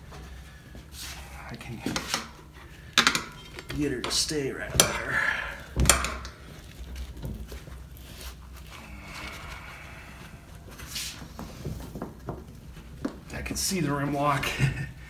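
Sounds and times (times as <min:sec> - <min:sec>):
rubber rubbing against rim: 0:05.0 - 0:12.2.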